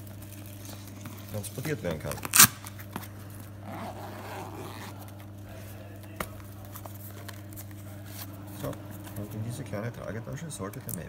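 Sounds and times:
zipper rasp: 0:03.6 - 0:05.0.

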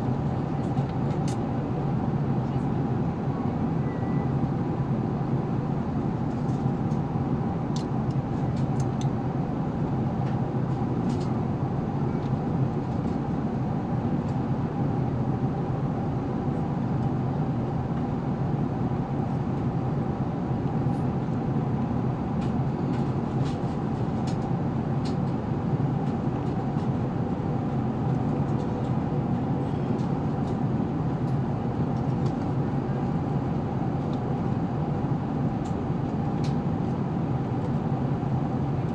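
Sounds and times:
airplane cabin engine and airflow rush: 0:00.0 - 0:38.9.

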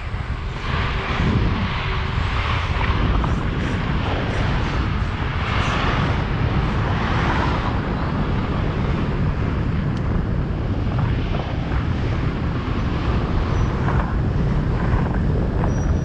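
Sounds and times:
car traffic: 0:00.0 - 0:15.4
bicycle riding rushing noise: 0:00.0 - 0:16.0
wind rumbling on microphone: 0:00.0 - 0:16.0.

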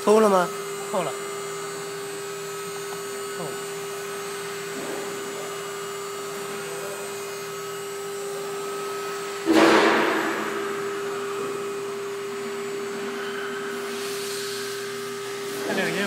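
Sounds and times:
router spindle humming: 0:00.0 - 0:14.0.

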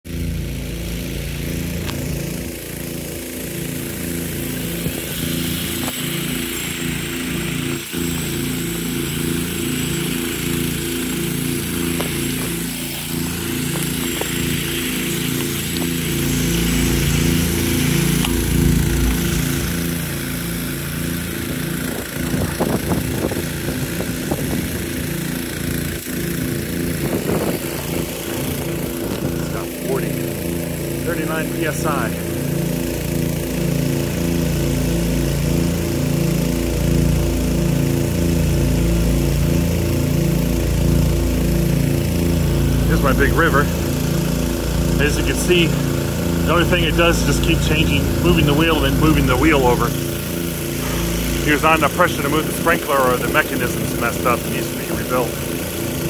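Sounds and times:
low mechanical drone: 0:00.1 - 0:56.0
water jet spray hissing: 0:00.9 - 0:36.4, 0:42.4 - 0:56.0.

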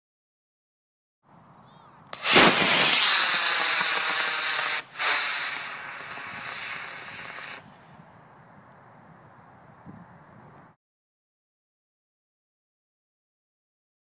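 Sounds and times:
rocket motor hissing: 0:02.2 - 0:07.7.

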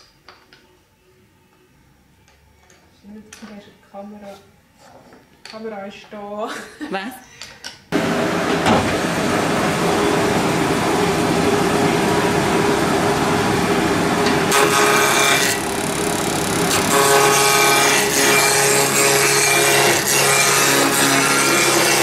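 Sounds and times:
wood lathe humming: 0:08.0 - 0:22.0
gouge scraping spinning wood: 0:14.2 - 0:22.0.

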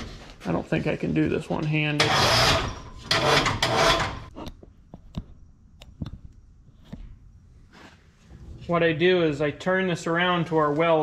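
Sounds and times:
metal scraping on steel table: 0:02.0 - 0:04.4.

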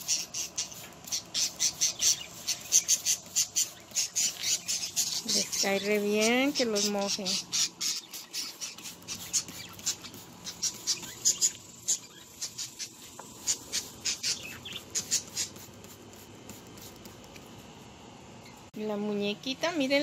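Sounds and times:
budgerigars chirping: 0:00.0 - 0:15.6.

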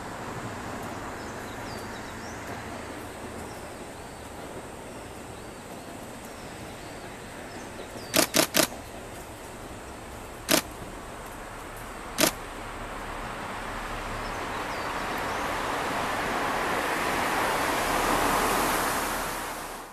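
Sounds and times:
distant diesel train rumble: 0:00.0 - 0:19.9
open-air noise: 0:00.0 - 0:19.9
sharp clicks: 0:08.1 - 0:08.8, 0:10.5 - 0:10.7, 0:12.2 - 0:12.4.

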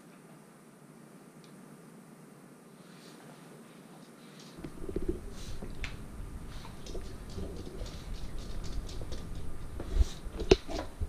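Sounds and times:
person's footsteps: 0:04.4 - 0:11.0
low rumble of movement: 0:04.6 - 0:11.0
dog claws ticking on wooden floor: 0:06.6 - 0:10.8.

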